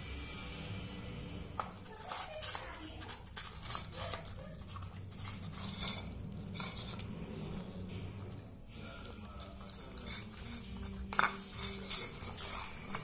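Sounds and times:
puppy clinking a steel bowl: 9.0s - 13.0s.

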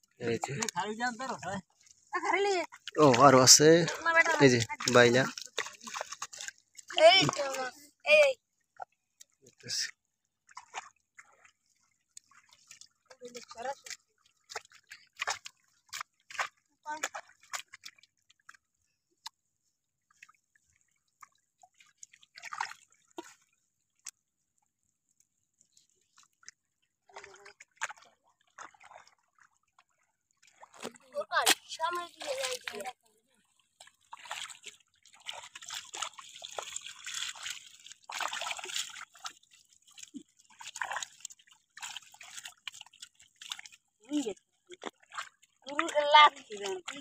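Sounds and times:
water sloshing and dripping: 0.0s - 47.0s
wet fishing net rustling: 33.5s - 47.0s.

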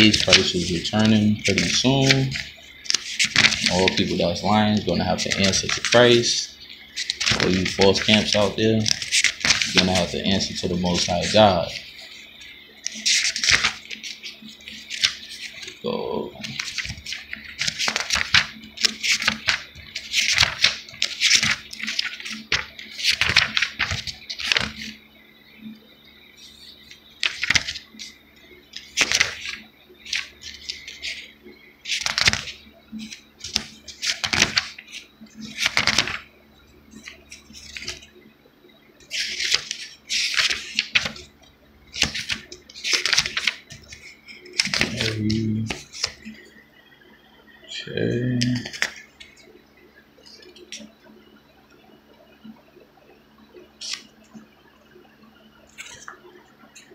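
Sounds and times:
pages being turned: 0.0s - 25.0s, 27.2s - 36.2s, 37.0s - 38.1s, 39.0s - 41.3s, 41.9s - 46.5s, 48.4s - 49.4s, 53.8s - 54.1s, 55.7s - 56.2s.

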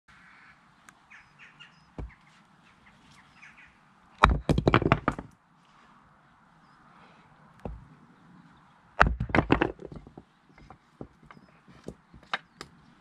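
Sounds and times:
birds chirping faintly: 0.1s - 4.2s, 5.4s - 13.0s
wooden pieces clattering: 4.2s - 5.4s, 9.0s - 12.8s.

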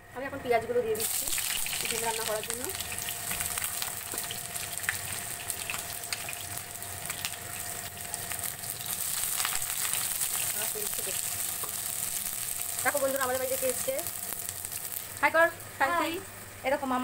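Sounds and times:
onions sizzling in hot oil: 1.0s - 17.0s
spatula stirring in wok: 7.1s - 12.8s.

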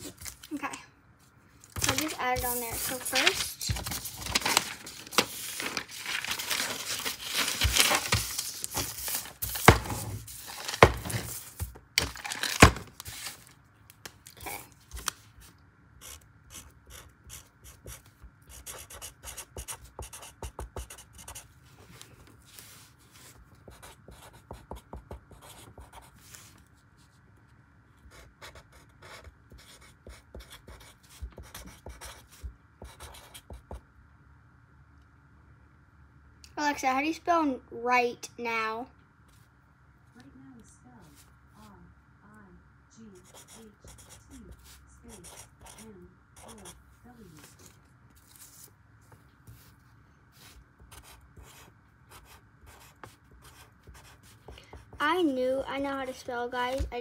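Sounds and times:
paper rustling: 1.6s - 13.5s, 47.2s - 50.6s
marker writing on paper: 1.9s - 3.2s, 16.0s - 21.5s, 28.1s - 33.8s, 43.2s - 46.8s, 50.4s - 55.1s.

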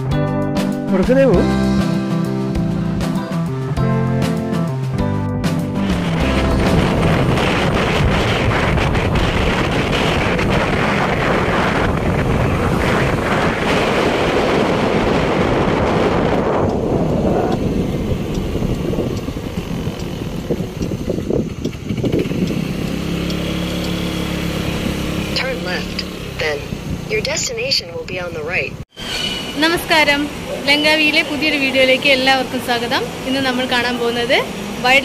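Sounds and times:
car road noise: 0.8s - 35.0s
wind buffeting microphone: 5.8s - 28.8s.

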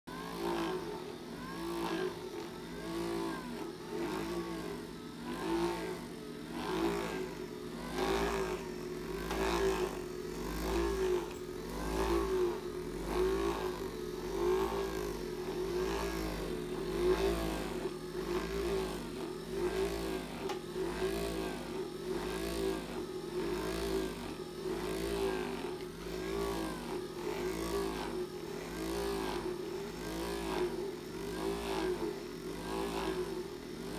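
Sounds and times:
electric massager motor hum: 0.1s - 33.9s.

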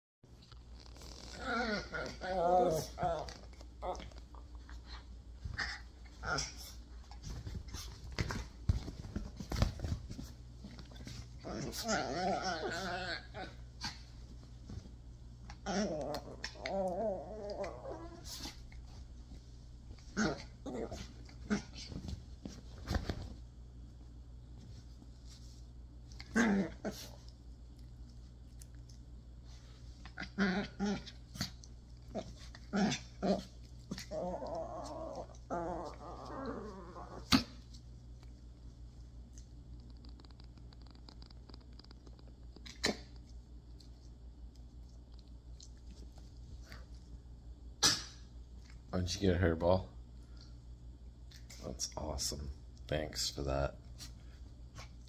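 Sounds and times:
dogs growling: 1.0s - 4.4s, 11.1s - 14.1s, 15.5s - 18.8s, 20.0s - 22.0s, 30.0s - 37.6s.

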